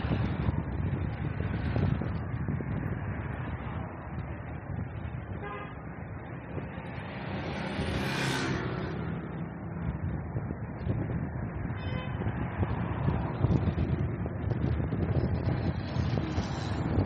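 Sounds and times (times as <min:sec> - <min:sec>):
busy street traffic: 0:00.0 - 0:17.0
vehicle passing close: 0:06.6 - 0:10.2.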